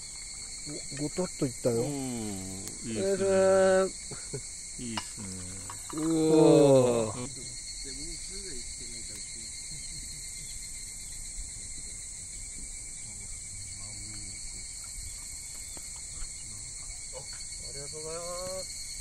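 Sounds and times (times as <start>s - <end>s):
crickets and insects trilling: 0.0s - 19.0s
faint voices: 0.6s - 10.6s, 11.4s - 14.7s
person speaking: 0.7s - 4.1s, 4.8s - 7.5s.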